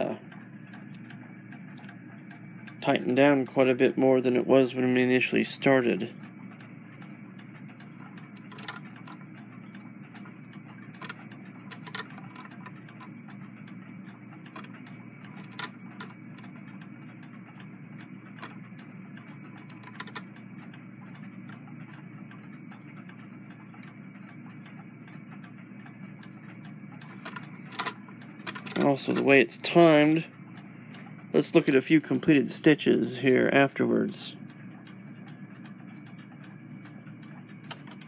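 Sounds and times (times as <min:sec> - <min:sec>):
sewing machine running: 0:10.9 - 0:12.7.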